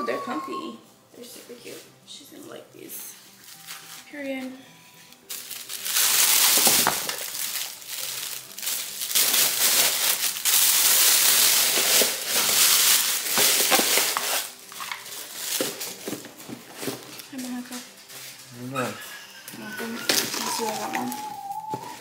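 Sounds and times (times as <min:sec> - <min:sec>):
plastic bag crinkling: 0:03.4 - 0:04.2, 0:05.2 - 0:17.7, 0:19.8 - 0:22.0.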